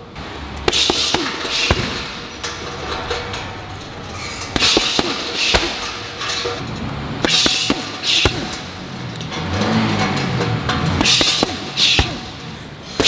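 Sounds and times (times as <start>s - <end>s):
punches and kicks on heavy bag: 0.7s - 2.2s, 4.5s - 6.0s, 7.2s - 8.8s, 11.0s - 13.0s.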